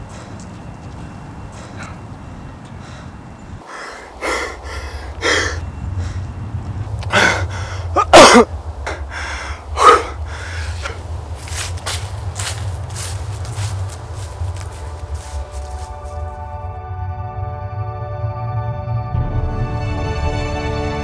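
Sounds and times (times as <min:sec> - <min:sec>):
man breathing heavily and gasping: 0:02.8 - 0:06.4, 0:07.0 - 0:11.1
man's strained cry: 0:07.1 - 0:09.0.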